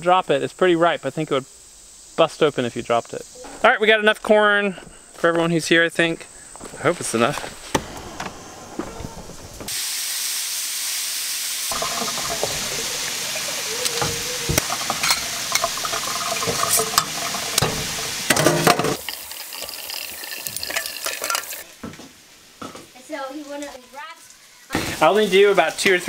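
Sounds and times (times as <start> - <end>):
corn cobs rubbed under water: 11.7 - 21.6.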